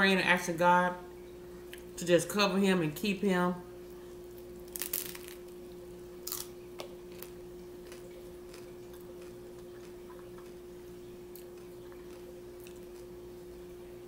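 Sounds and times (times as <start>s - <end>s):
faint steady hum: 0.0s - 14.0s
taco shell crunching: 4.3s - 5.6s, 6.2s - 10.6s.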